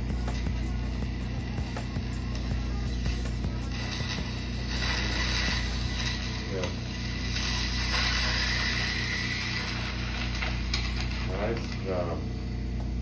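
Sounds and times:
low hum: 0.0 - 13.0
medical suction hissing: 2.4 - 11.8.

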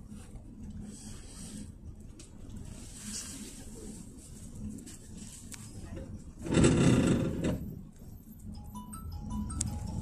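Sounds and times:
bus engine humming: 0.0 - 10.0
simple tune of high notes: 8.5 - 10.0.

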